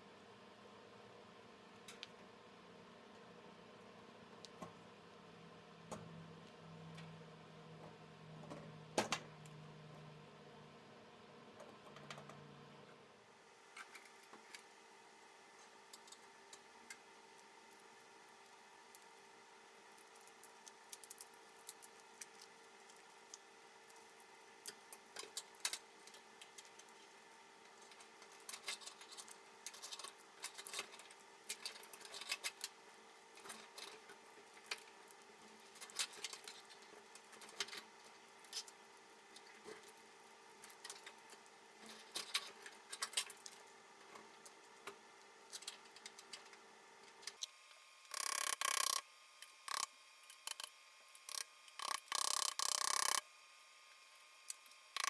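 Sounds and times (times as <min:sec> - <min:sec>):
faint steady hum: 0:00.0 - 0:55.0
metal and plastic parts clicking: 0:48.1 - 0:49.0, 0:49.7 - 0:53.2.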